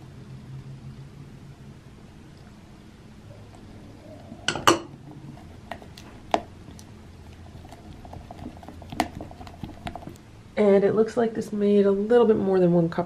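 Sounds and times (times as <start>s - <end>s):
glass dishware clinking: 4.5s - 4.9s
spatula stirring thick batter: 5.0s - 10.2s.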